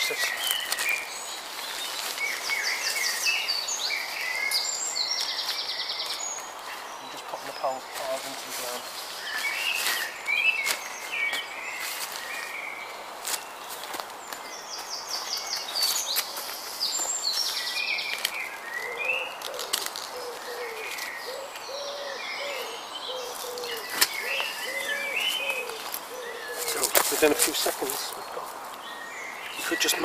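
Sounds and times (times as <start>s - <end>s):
birds singing and chirping: 0.0s - 30.0s
low repeated bird call: 14.5s - 30.0s.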